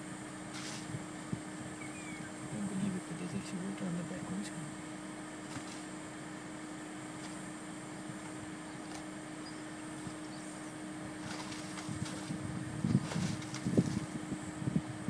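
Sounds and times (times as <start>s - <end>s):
wind buffeting microphone: 11.1s - 15.0s.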